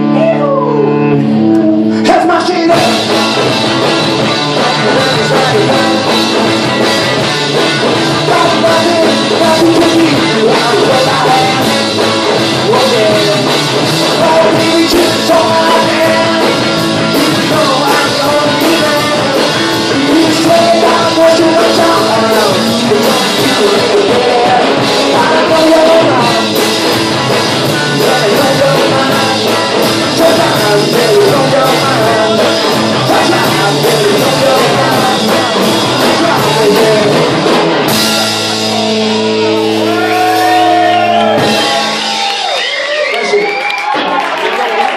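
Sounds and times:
person singing lead vocal: 0.0 - 42.0
drums: 0.0 - 44.9
electric guitars: 0.0 - 44.9.

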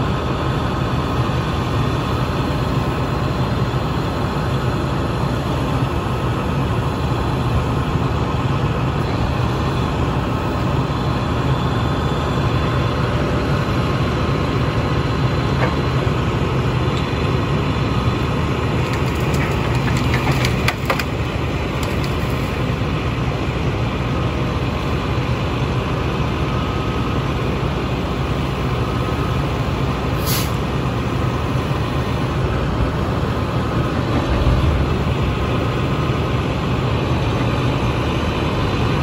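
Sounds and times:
diesel engine running: 0.0 - 39.0
short hiss: 30.2 - 30.6.

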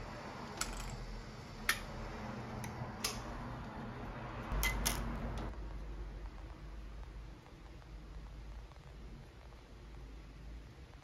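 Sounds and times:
sharp clicks and ticks: 4.5 - 11.0.

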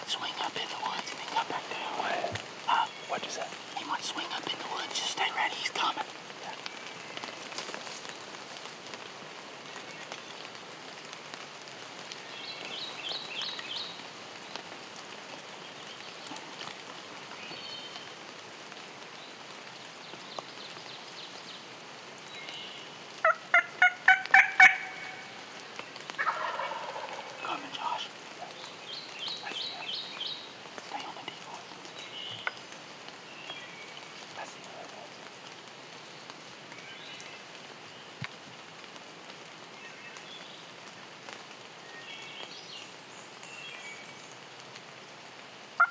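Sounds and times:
turkey gobbling loudly: 23.2 - 25.3, 26.2 - 27.4.

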